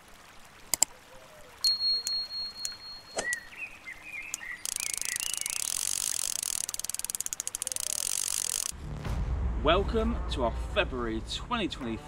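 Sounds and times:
faint chirps: 1.6s - 6.1s
high-pitched ratcheting buzz: 4.6s - 8.7s.

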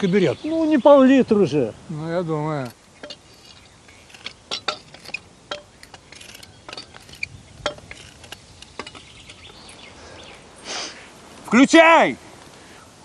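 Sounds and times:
pole climbers clanking on concrete: 2.4s - 9.8s.

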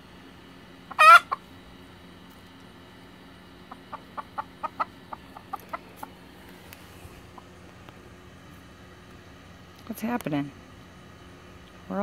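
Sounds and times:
chicken clucking: 0.9s - 1.5s, 3.7s - 6.2s.

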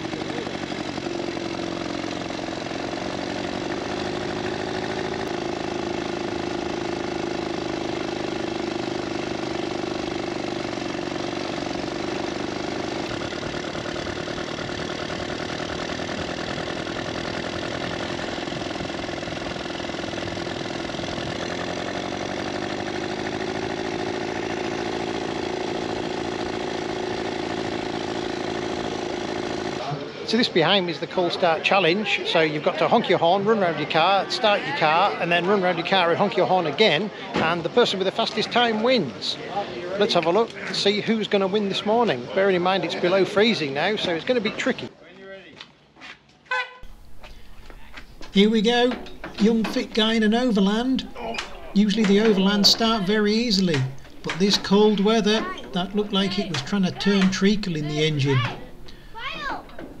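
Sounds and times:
two-stroke motorcycle engine buzzing: 0.0s - 30.0s, 46.8s - 60.0s.

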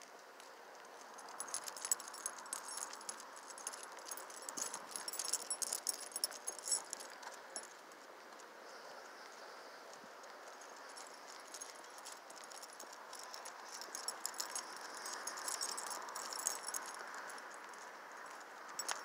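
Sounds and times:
metallic jingling and clicking: 1.0s - 7.8s, 10.8s - 19.0s.

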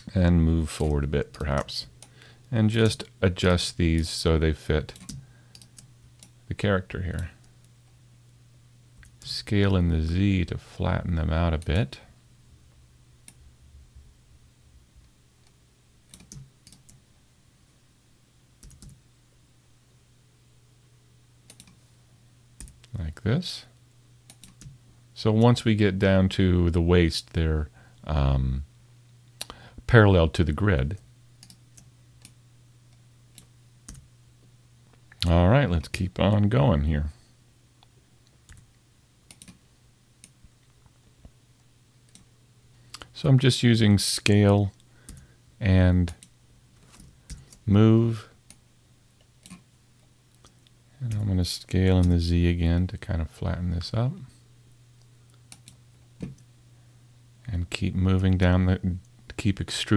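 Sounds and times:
faint low hum: 0.0s - 59.9s
keyboard and mouse clicks: 15.4s - 17.0s, 18.6s - 19.0s, 21.5s - 21.8s, 24.3s - 24.8s, 39.3s - 39.6s.

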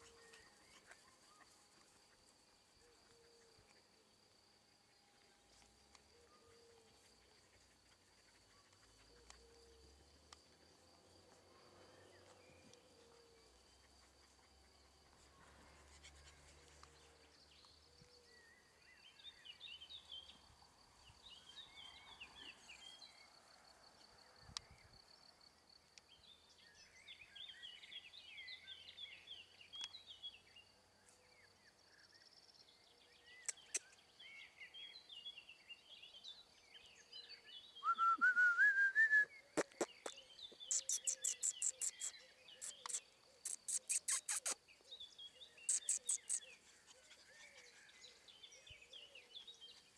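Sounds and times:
birds chirping: 39.4s - 49.9s.

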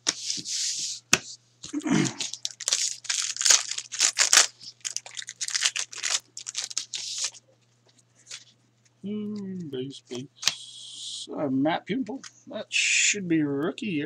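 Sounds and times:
foil wrapper tearing and crinkling: 1.7s - 7.4s.

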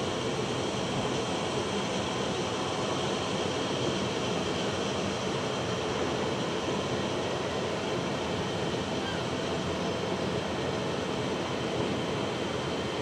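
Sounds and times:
airport background drone: 0.0s - 13.0s.

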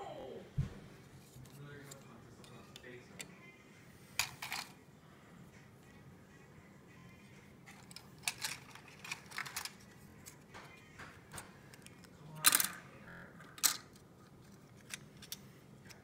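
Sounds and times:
plastic parts clicking and rustling: 4.2s - 4.8s, 7.7s - 10.4s, 11.0s - 12.8s, 13.4s - 16.0s.

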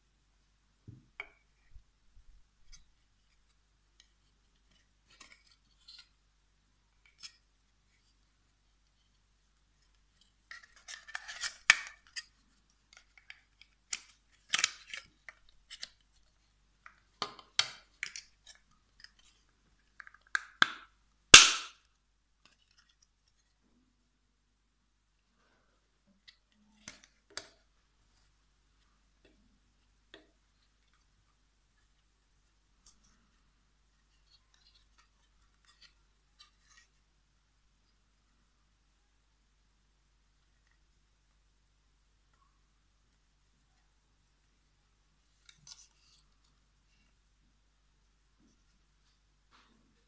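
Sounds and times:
plastic parts clicking and scraping: 10.1s - 20.4s.

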